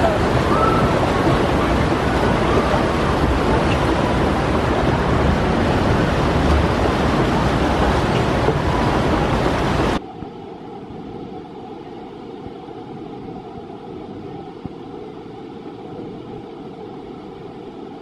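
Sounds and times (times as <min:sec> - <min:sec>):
rushing whitewater: 0:00.0 - 0:10.0.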